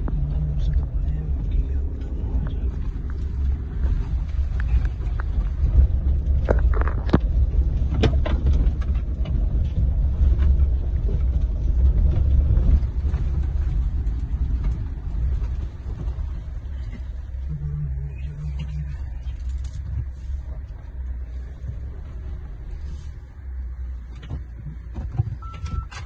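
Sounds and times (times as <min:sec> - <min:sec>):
vehicle cabin rumble: 0:00.0 - 0:26.0
knocks and rattles: 0:01.6 - 0:17.2.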